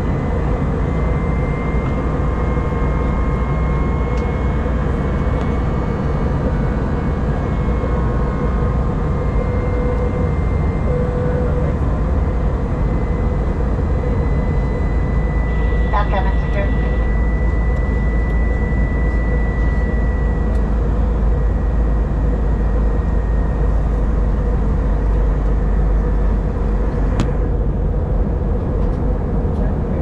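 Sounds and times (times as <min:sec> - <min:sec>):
airliner engines roaring: 0:00.0 - 0:30.0.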